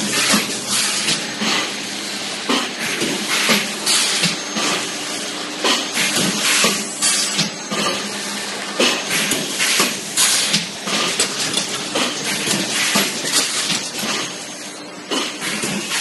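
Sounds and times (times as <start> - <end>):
machine clattering: 9.3 - 14.4.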